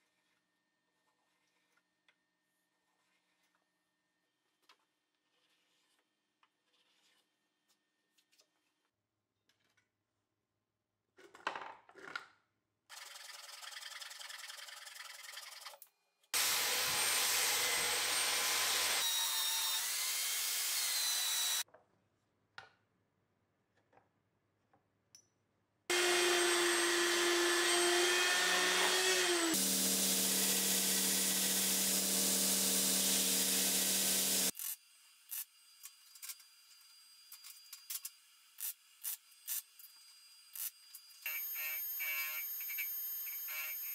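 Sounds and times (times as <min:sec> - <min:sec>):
power tools cutting wood: 0:16.4 - 0:21.6, 0:25.9 - 0:34.5, 0:41.3 - 0:43.9.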